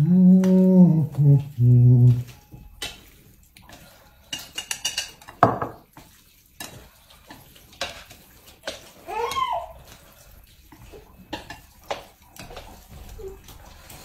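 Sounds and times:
chopsticks tapping on ceramic bowls: 4.3s - 5.8s.

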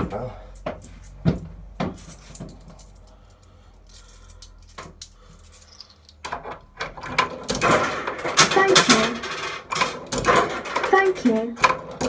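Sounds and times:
coins clinking in coin slot: 4.0s - 12.0s.

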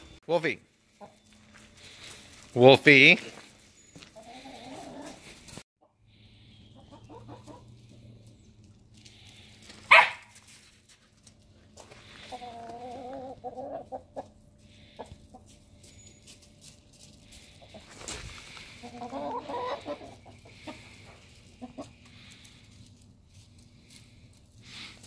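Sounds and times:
hens clucking: 0.8s - 2.0s, 4.0s - 9.0s, 11.7s - 15.9s, 17.1s - 25.0s.

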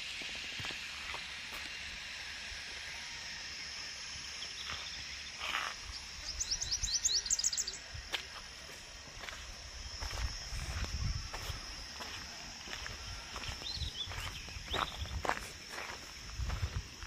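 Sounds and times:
high background hiss: 0.0s - 17.0s
bird chirping: 4.3s - 8.0s, 13.2s - 15.9s.

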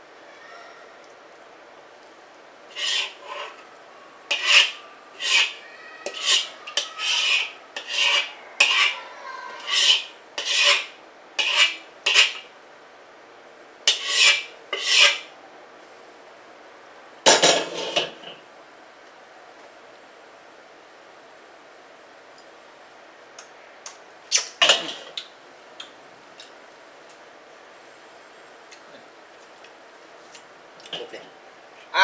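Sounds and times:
metal ladle scraping wok: 2.7s - 3.6s, 4.3s - 9.0s, 9.6s - 12.4s, 13.9s - 15.3s, 17.4s - 18.2s.

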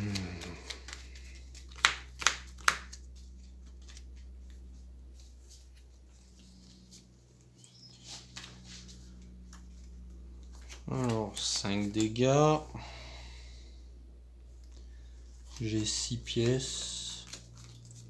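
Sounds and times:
playing cards snapping: 0.0s - 3.1s, 15.5s - 18.0s
cards rustling and ticking: 0.0s - 12.6s, 14.5s - 18.0s
low hum: 0.0s - 18.0s.

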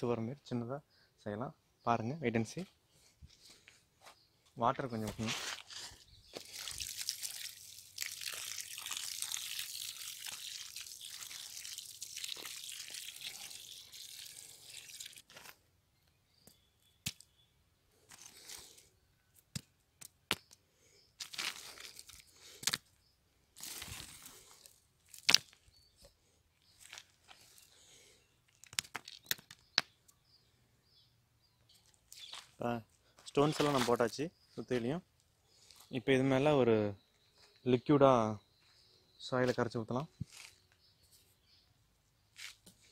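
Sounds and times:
stones and soil knocking: 5.0s - 15.6s, 16.4s - 17.4s, 18.1s - 20.6s, 21.2s - 23.0s, 23.6s - 27.6s, 28.5s - 30.1s, 33.2s - 34.1s
hose water splashing on soil: 6.3s - 15.6s, 21.2s - 22.8s, 23.6s - 25.6s, 33.4s - 34.1s.

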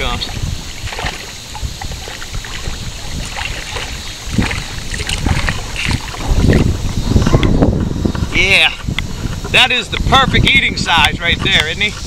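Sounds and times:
river water sloshing and splashing: 0.0s - 7.1s.

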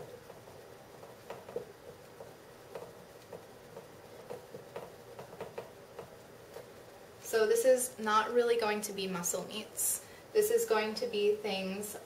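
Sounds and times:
marker writing on whiteboard: 0.0s - 6.7s.

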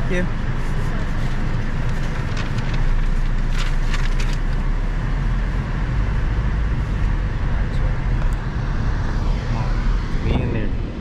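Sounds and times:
car engine rumble inside cabin: 0.0s - 11.0s.

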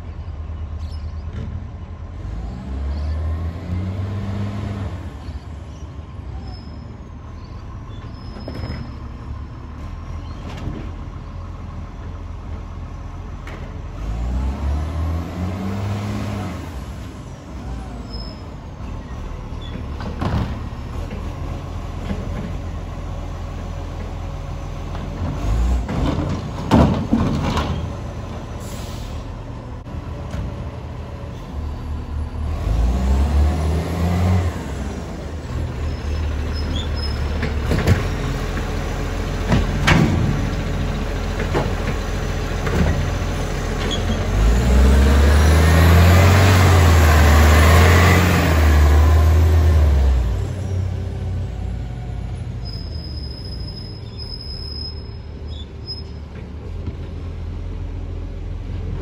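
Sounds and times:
garbage truck diesel engine: 0.0s - 59.0s
air brake hisses: 28.6s - 29.3s.

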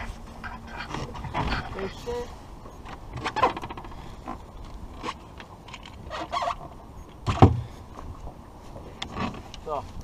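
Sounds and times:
squeaks: 6.1s - 6.6s.

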